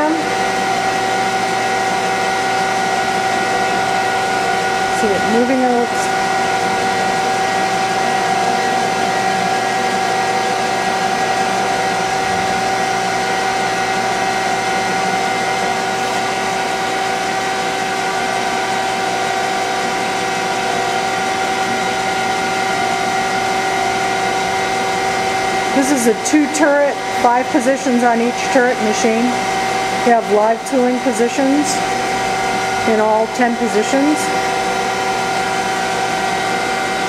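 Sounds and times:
lathe machine whirring and whining: 0.0 - 37.0.

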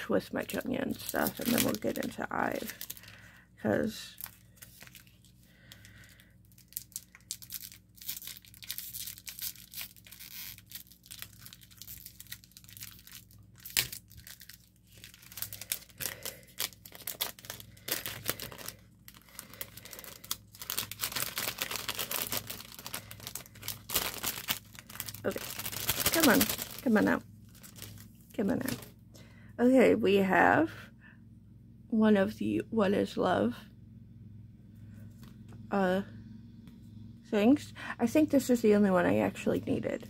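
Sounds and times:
packaging tearing and crinkling: 0.9 - 3.2, 4.1 - 28.8.

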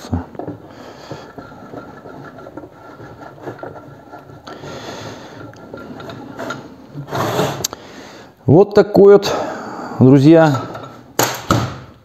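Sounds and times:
vise leadscrew scraping and rattling: 0.0 - 7.8, 10.4 - 11.2.

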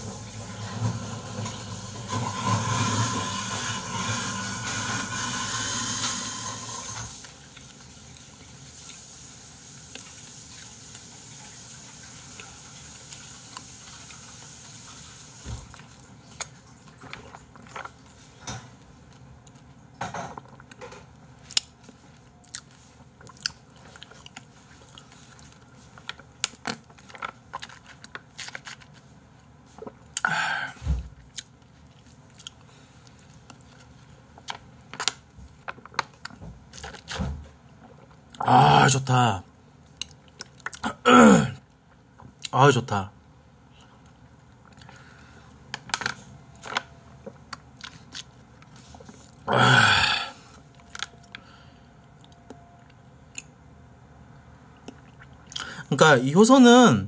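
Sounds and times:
faint steady hiss: 3.0 - 17.2.

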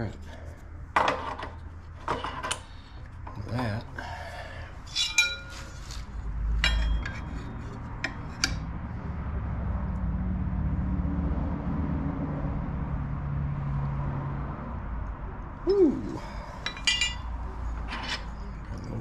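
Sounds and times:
low steady hum: 0.0 - 9.4, 14.9 - 19.0
metal clinks and taps: 6.6 - 7.4, 16.6 - 18.3.

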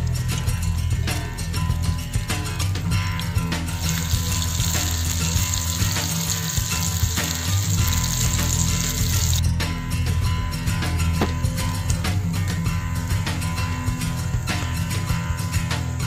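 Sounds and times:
fish sizzling in oil: 0.0 - 9.4
background music: 0.0 - 16.0.

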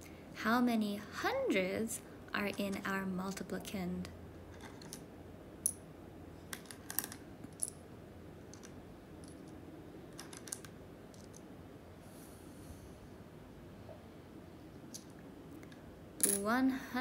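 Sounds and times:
wooden tiles clicking: 8.5 - 11.5.

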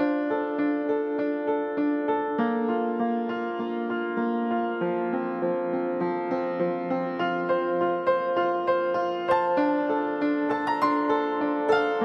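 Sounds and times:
soft keyboard melody: 5.8 - 12.0.

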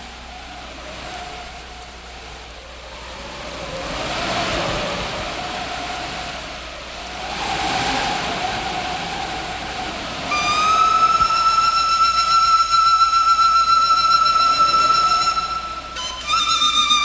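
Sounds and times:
faint wavering whistle: 0.0 - 17.0
flute long held note: 10.0 - 17.0.

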